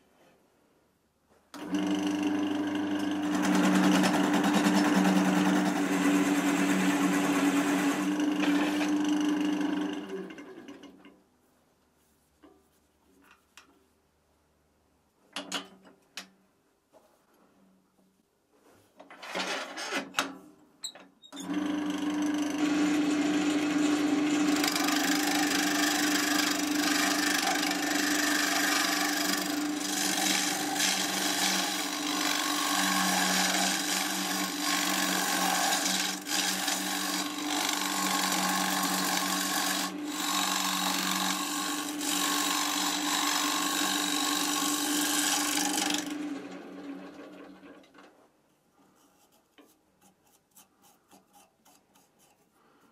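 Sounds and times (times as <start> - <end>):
wood lathe motor humming: 1.6 - 10.8, 21.4 - 47.6
turning tool cutting wood: 1.6 - 11.0, 21.4 - 47.7, 48.9 - 52.9.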